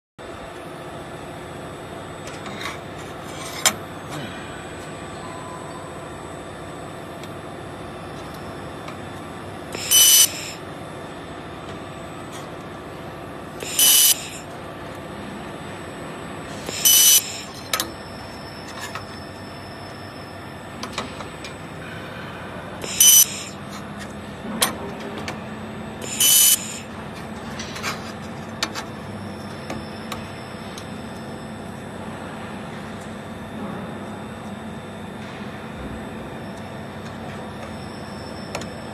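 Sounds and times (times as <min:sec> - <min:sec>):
steady hum: 0:00.2 - 0:38.9
laser welder hissing bursts: 0:09.8 - 0:10.6, 0:13.6 - 0:14.5, 0:16.6 - 0:17.5, 0:22.8 - 0:23.6, 0:26.0 - 0:26.9.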